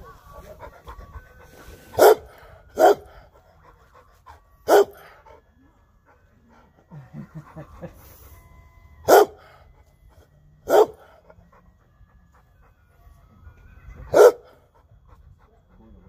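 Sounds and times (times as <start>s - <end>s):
dog barking: 2.0s - 2.2s, 2.8s - 3.1s, 4.7s - 5.0s, 9.1s - 9.4s, 10.7s - 11.0s, 14.1s - 14.5s.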